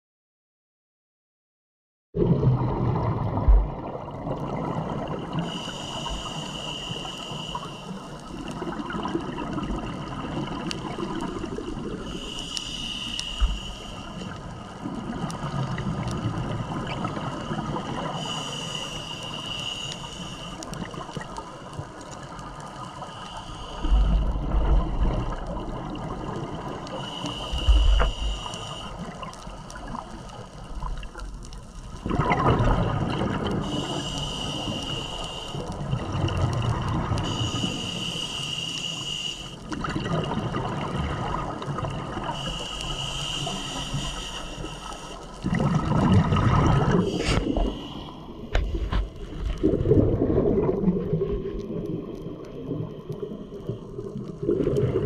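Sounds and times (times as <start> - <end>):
exhaled air bubbles gurgling: 2.2 - 18.7, 20.1 - 38.2, 39.6 - 55.0
scuba regulator hissing inhale: 5.3 - 8.5, 10.8 - 14.9, 17.3 - 21.6, 22.6 - 24.6, 25.9 - 30.9, 33.5 - 36.0, 37.1 - 39.8, 42.2 - 45.5, 46.9 - 48.5.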